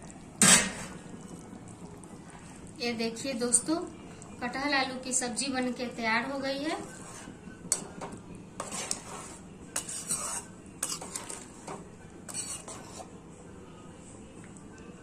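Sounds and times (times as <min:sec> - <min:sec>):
metal spoon scraping pot: 0:06.8 - 0:13.1.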